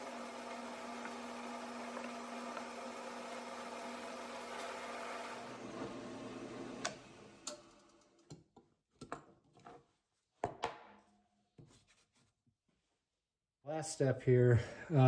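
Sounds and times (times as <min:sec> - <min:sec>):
drill press motor humming: 0:00.0 - 0:07.7.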